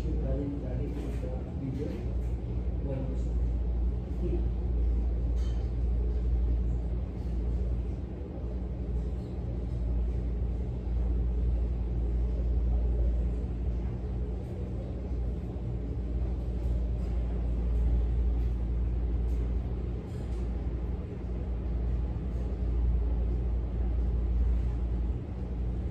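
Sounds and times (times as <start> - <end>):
low machine rumble and hum: 0.0 - 25.9.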